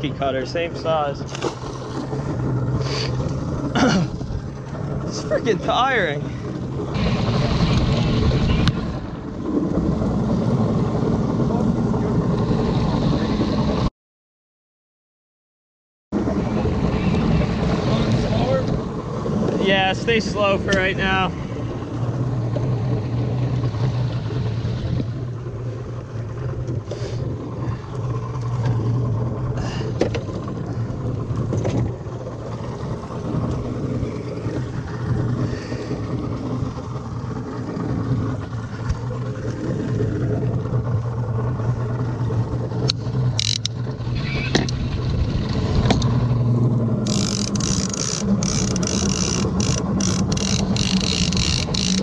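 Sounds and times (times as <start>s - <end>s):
outboard motor running: 0.0s - 13.9s, 16.2s - 52.0s
water wash around hull: 0.0s - 13.9s, 16.2s - 52.0s
fishing reel clicks and knocks: 42.8s - 43.8s, 47.0s - 52.0s.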